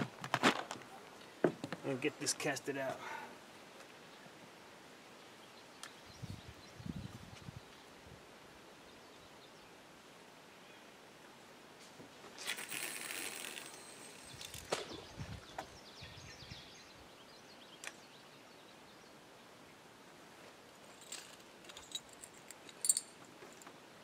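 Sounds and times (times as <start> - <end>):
fishing reel clicks: 12.4 - 14.6
fishing line whizzing off reel: 12.4 - 15.1.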